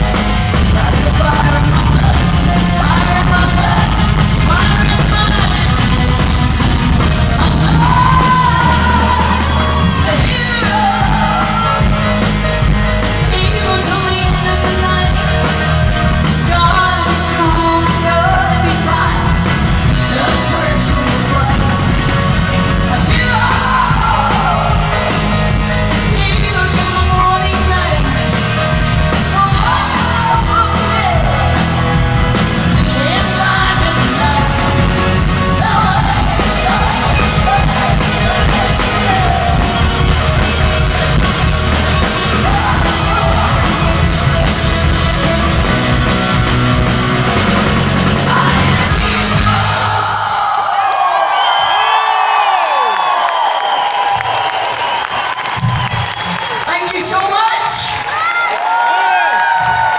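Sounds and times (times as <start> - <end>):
live rock band playing: 0.0 - 50.4
woman singing: 0.6 - 6.1, 7.2 - 11.9, 13.2 - 15.7, 16.3 - 25.2, 25.9 - 28.6, 29.2 - 31.7, 32.7 - 39.9, 40.8 - 45.3, 48.1 - 50.7.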